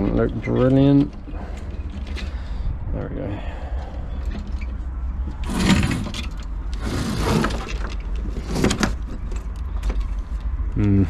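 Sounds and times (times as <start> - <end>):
traveller car sliding on metal track: 3.8 - 9.4.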